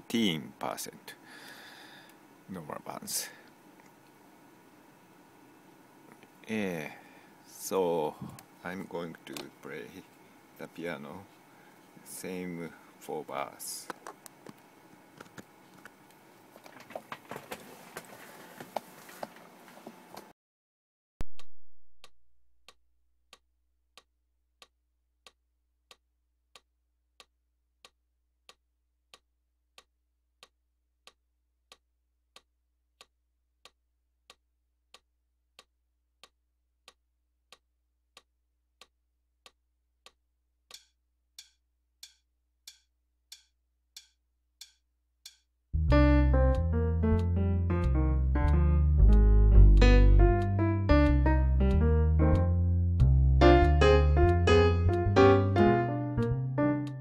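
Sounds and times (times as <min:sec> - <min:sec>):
metronome clicking: 0:40.7 - 0:52.4, 0:53.5 - 0:57.0.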